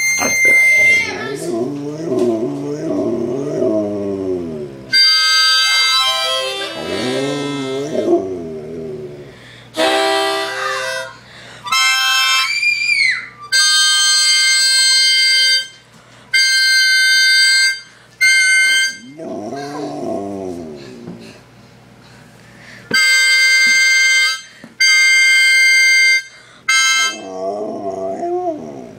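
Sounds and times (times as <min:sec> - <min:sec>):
harmonica held notes: 0:00.0 - 0:01.3, 0:04.9 - 0:07.9, 0:09.8 - 0:19.1, 0:22.9 - 0:27.2
dog howling: 0:01.0 - 0:04.8, 0:19.0 - 0:20.8, 0:27.2 - 0:28.9.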